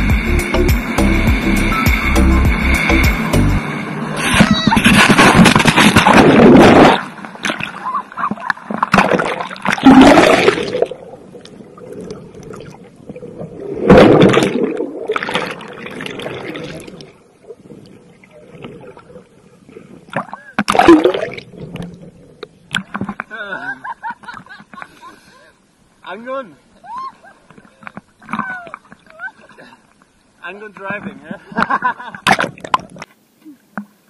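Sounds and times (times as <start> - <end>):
underwater gurgling and sloshing: 3.6 - 23.3
water splashing: 4.1 - 24.6, 30.8 - 33.1.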